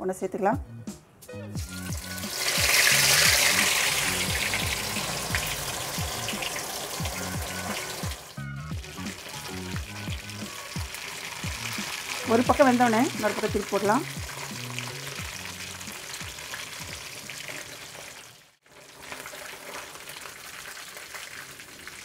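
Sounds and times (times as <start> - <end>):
background music with beat: 0.6 - 17.4
fish sizzling in hot oil: 1.6 - 22.0.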